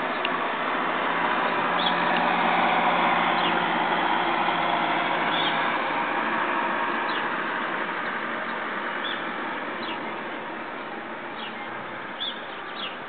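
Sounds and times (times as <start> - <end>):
road traffic hiss: 0.0 - 13.0
small birds chirping: 1.4 - 2.2, 3.3 - 3.7, 5.2 - 5.7, 7.0 - 10.1, 10.8 - 13.0.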